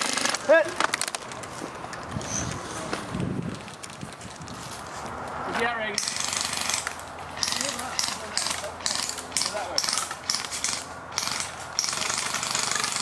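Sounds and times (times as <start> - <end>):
airsoft minigun rapid fire bursts: 6.0 - 6.8, 7.4 - 13.0.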